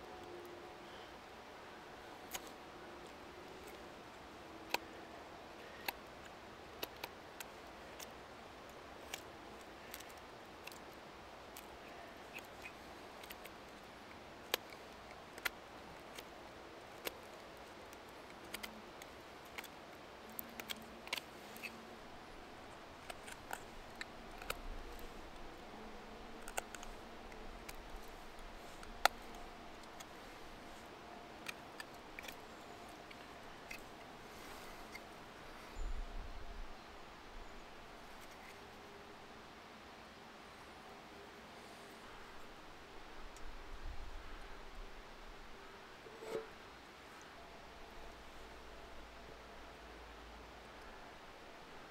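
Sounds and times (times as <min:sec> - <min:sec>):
knife carving wood: 0:09.0 - 0:22.1, 0:22.9 - 0:35.0.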